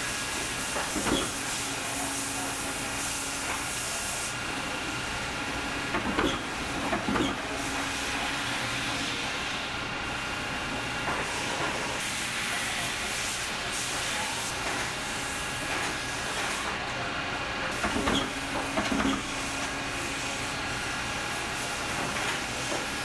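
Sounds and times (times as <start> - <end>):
hydraulic press hissing: 0.3 - 9.6, 17.7 - 23.0.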